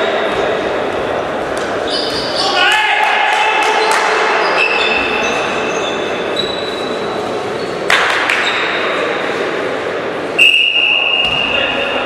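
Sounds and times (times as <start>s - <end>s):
reverberant sports hall noise: 0.0s - 12.0s
shoes squeaking on court floor: 1.8s - 2.6s, 4.3s - 8.8s.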